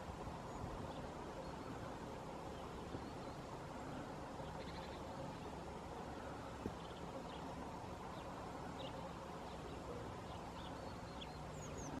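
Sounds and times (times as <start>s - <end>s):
songbirds chirping: 0.0s - 12.0s.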